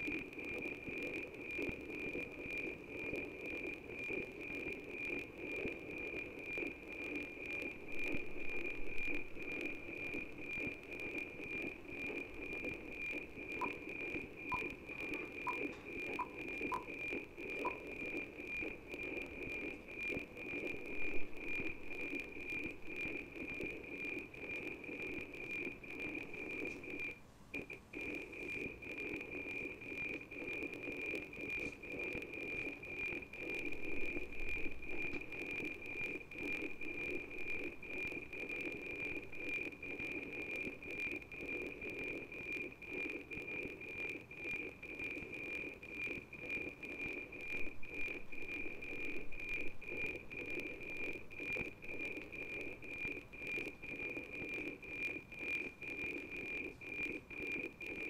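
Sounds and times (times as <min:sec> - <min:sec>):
radio noise: 0:00.0 - 0:58.0
steady high whine: 0:00.0 - 0:58.0
regular ticking sync pulses: 0:09.4 - 0:20.4.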